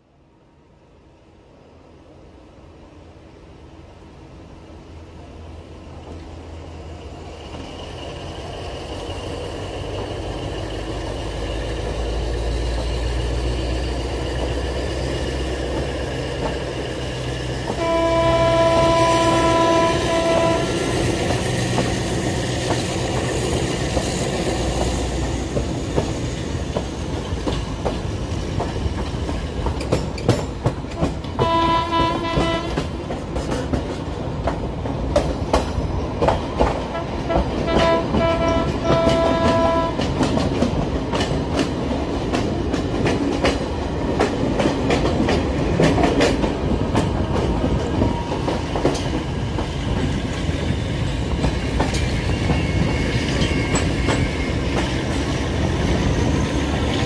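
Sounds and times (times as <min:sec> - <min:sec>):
locomotive engine whine: 0:05.9 - 0:28.5
train horn blast: 0:17.7 - 0:21.0, 0:31.0 - 0:32.9, 0:36.9 - 0:40.1
wheels clicking over rail joints: 0:21.2 - 0:50.6.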